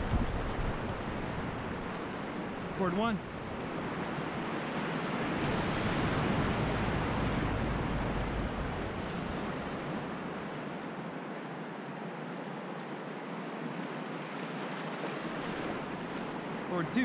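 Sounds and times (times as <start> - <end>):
wind rumble on microphone: 0.0 - 10.5
whitewater rushing: 0.0 - 11.7.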